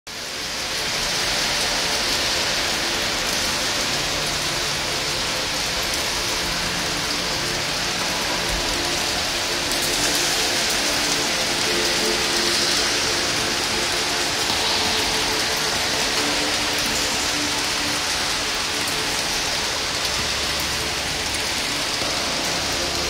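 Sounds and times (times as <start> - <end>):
rain-like crackling hiss: 0.1 - 23.0.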